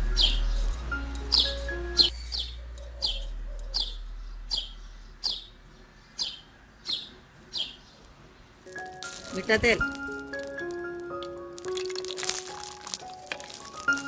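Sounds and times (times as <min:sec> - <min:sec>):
background music: 0:00.0 - 0:03.2, 0:08.7 - 0:14.0
small bird chirping: 0:00.0 - 0:08.1.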